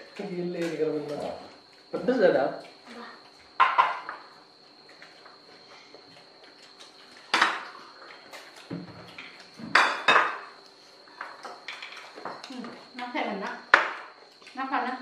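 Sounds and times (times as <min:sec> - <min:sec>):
dishes knocking: 0:03.6 - 0:04.2, 0:09.6 - 0:10.5
plates and cutlery clinking: 0:03.6 - 0:04.4, 0:06.7 - 0:12.5.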